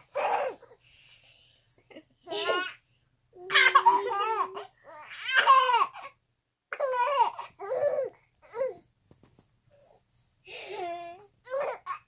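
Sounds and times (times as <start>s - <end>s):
baby laughing: 2.3s - 2.8s, 3.5s - 6.1s.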